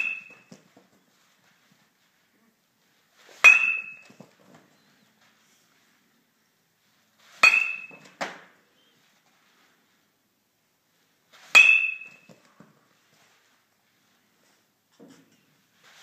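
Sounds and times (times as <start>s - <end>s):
bat hitting baseball: 0.0s - 0.9s, 3.4s - 4.5s, 7.3s - 8.6s, 11.5s - 12.5s.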